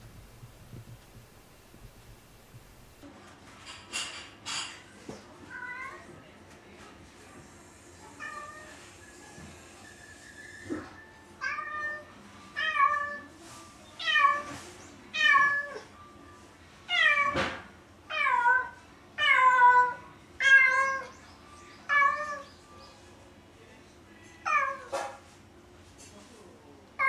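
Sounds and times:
cat meowing: 11.4s - 13.3s, 14.0s - 15.9s, 16.9s - 21.1s, 21.9s - 22.5s, 24.4s - 25.0s.

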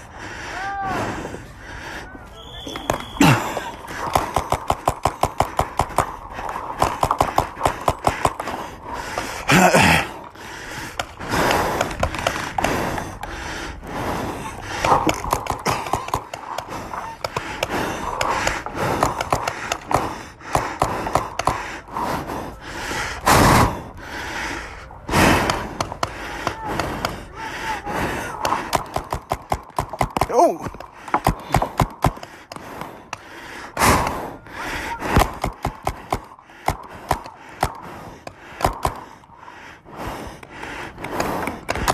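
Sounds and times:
hard breathing: 0.0s - 41.9s
paintball markers firing: 2.5s - 9.4s, 10.9s - 13.3s, 14.7s - 21.7s, 25.2s - 27.4s, 28.0s - 34.3s, 35.0s - 39.2s, 40.2s - 41.9s.

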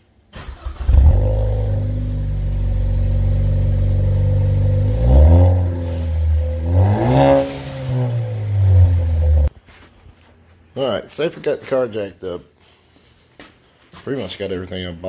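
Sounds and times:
car engine revving: 0.4s - 9.5s
car engine starting: 0.4s - 9.5s
car engine idling: 0.5s - 9.5s.

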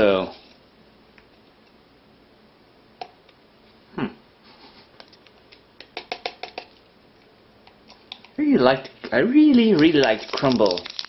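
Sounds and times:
foil packet crinkling: 9.2s - 11.0s.

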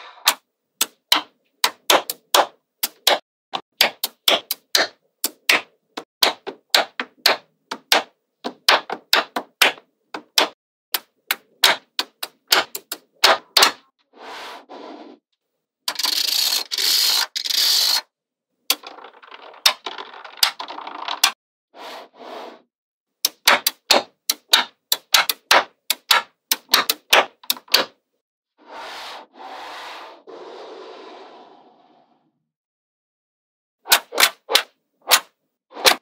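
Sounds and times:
magnetic balls clicking together: 0.3s - 8.0s, 8.7s - 13.8s, 15.9s - 18.0s, 18.7s - 21.4s, 23.2s - 27.9s.

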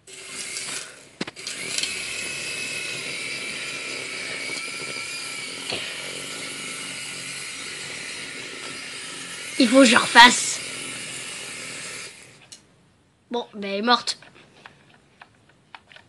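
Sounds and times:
toy helicopter motor whine: 0.0s - 12.6s.

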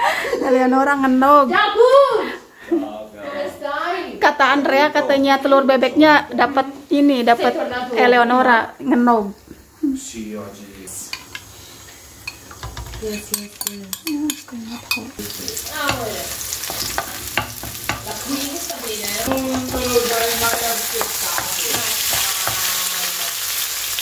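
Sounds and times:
hot oil sizzling: 4.5s - 24.0s
wooden spoon scraping a pan: 11.2s - 22.9s.

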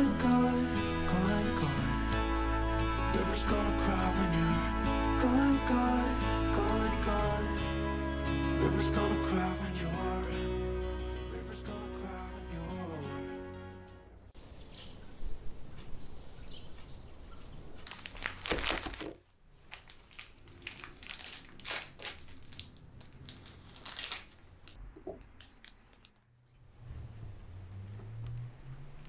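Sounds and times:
plastic wrapper crinkling: 0.0s - 2.4s, 17.7s - 24.8s, 25.4s - 26.4s.

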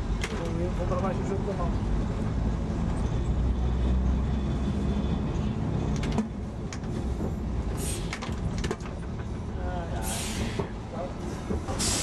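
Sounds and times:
tram rumbling on track: 0.0s - 12.0s
short hiss: 11.8s - 12.0s.

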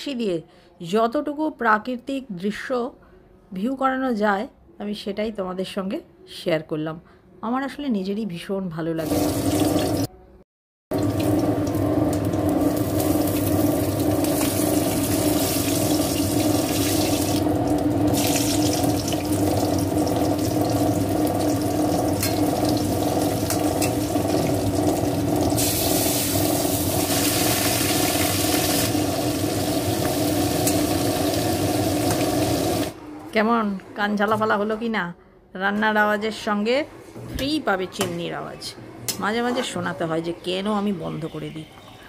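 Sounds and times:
fish sizzling in oil: 11.0s - 32.9s
extractor fan humming: 11.0s - 33.0s.

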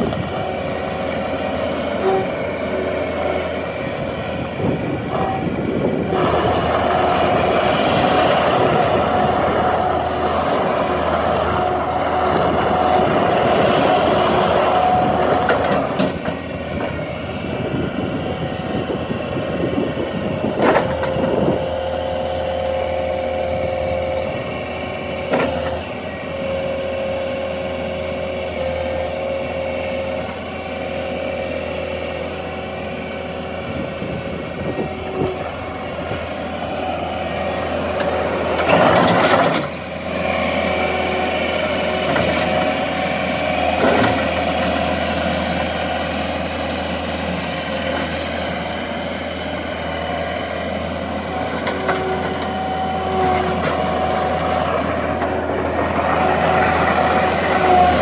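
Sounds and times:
diesel engine running: 0.0s - 58.0s
loader driving across gravel: 0.0s - 58.0s.

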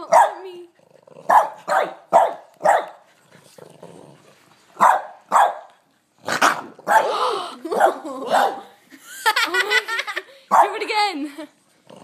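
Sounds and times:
puppy barking: 0.0s - 0.5s, 1.3s - 3.0s, 4.8s - 5.7s, 6.4s - 8.7s, 10.5s - 10.8s.

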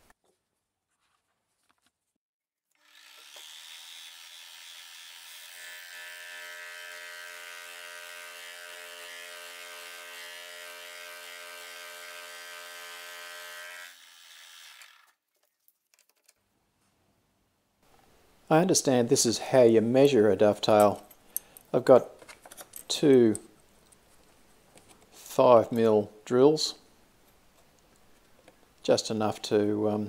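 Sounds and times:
rasping metal cutting: 2.8s - 15.1s.

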